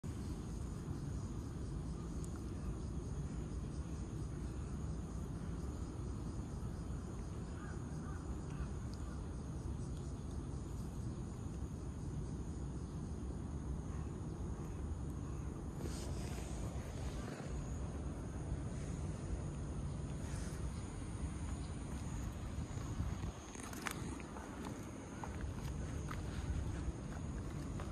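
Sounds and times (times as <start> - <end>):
low outdoor rumble: 0.0 - 27.9
crow cawing: 7.6 - 8.7.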